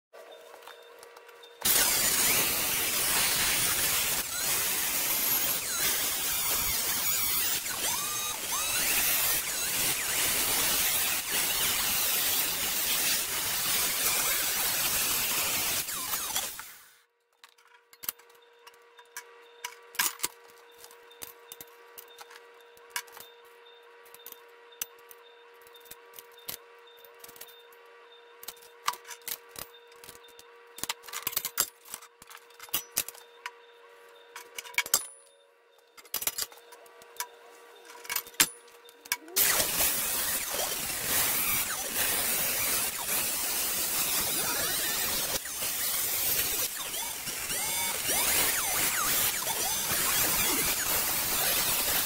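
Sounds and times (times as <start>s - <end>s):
angle grinder cutting steel: 1.6s - 17.0s, 39.2s - 52.0s.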